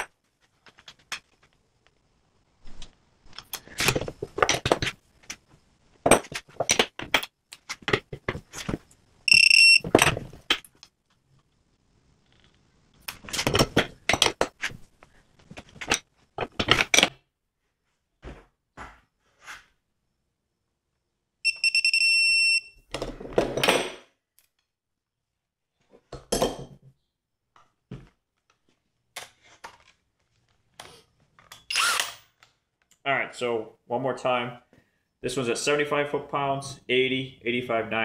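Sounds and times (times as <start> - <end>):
torque meter high beep: 9.3 - 9.9, 21.4 - 22.8.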